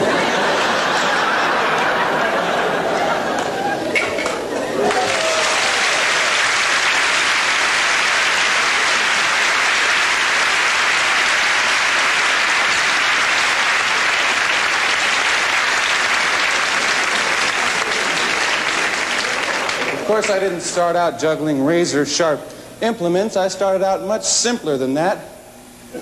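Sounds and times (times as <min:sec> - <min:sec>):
large audience applauding: 0:00.0 - 0:20.4.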